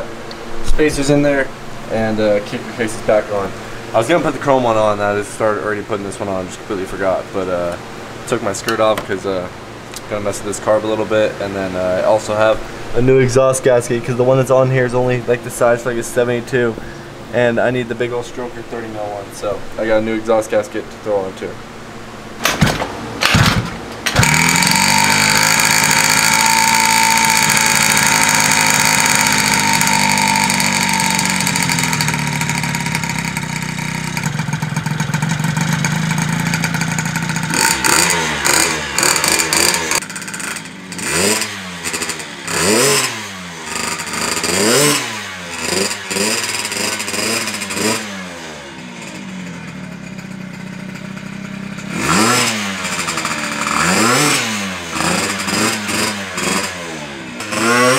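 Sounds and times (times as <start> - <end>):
scooter engine kick-started: 22.4 - 57.9
scooter engine revving: 22.4 - 57.9.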